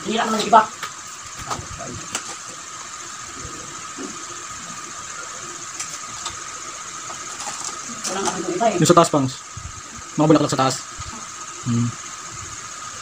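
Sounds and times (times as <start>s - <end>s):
faint high whine: 0.0s - 13.0s
room hiss: 0.0s - 13.0s.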